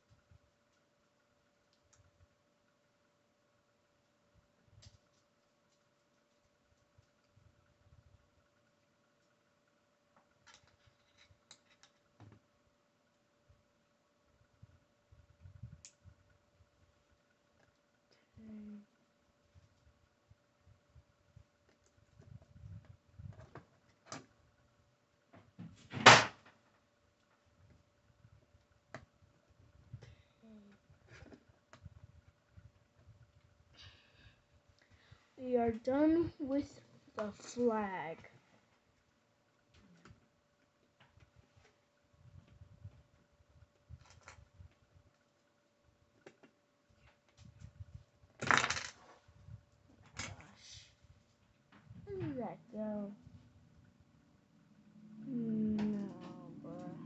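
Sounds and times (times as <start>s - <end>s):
plastic bricks clicking together: 48.4s - 49.0s.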